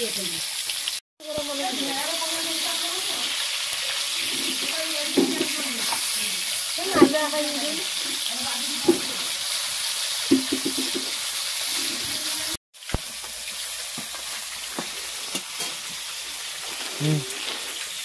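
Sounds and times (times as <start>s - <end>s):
fish sizzling in oil: 0.0s - 18.0s
metal spatula scraping a pan: 3.9s - 6.1s.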